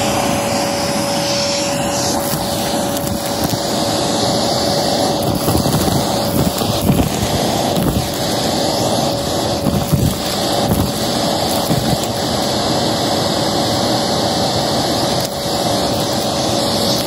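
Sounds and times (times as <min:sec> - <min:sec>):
vacuum cleaner whine: 0:00.0 - 0:17.0
debris rattling in vacuum hose: 0:01.3 - 0:12.4.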